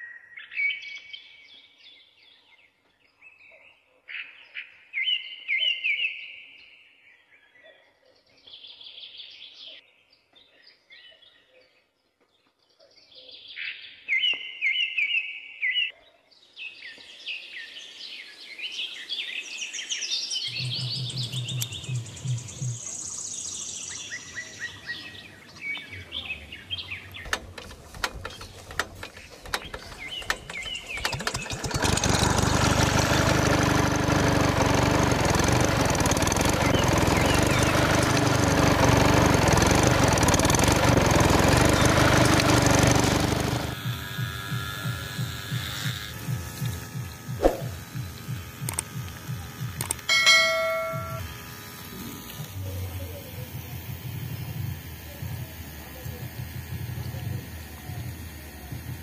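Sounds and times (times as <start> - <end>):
birds chirping and singing: 0.0 - 33.0, 36.0 - 39.4
small pump motor running: 27.2 - 59.0.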